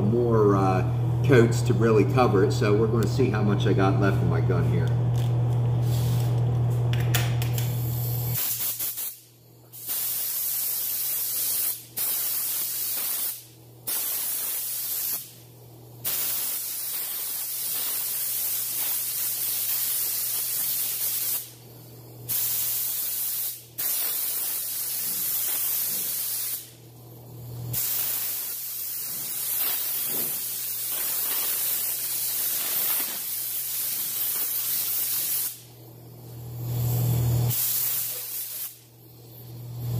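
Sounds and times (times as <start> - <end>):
paint spray gun hissing: 7.6 - 15.4, 16.0 - 21.6, 22.2 - 26.7, 27.7 - 35.6, 37.5 - 39.6.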